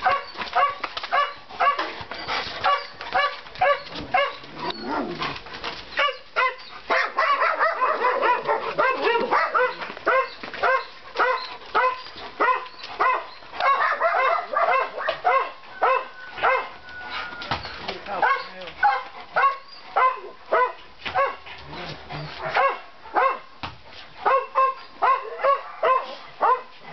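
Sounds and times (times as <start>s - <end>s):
dog barking: 0.0s - 1.9s, 2.6s - 4.4s, 6.0s - 16.8s, 18.2s - 21.4s, 22.4s - 23.5s, 24.2s - 26.7s.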